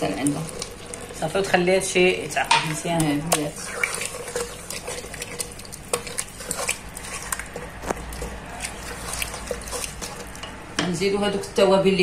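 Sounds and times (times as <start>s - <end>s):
spoon knocking metal pot: 2.4s - 3.5s
wet swishing: 3.3s - 10.4s.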